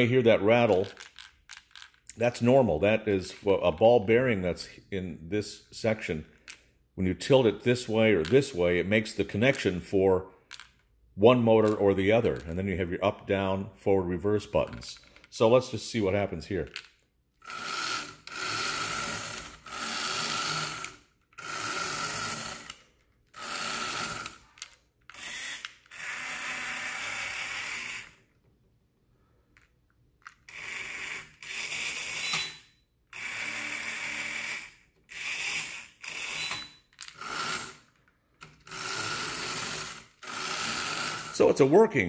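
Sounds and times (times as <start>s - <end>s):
toy electric motor whirring: 17.4s - 28.3s, 30.3s - 41.4s.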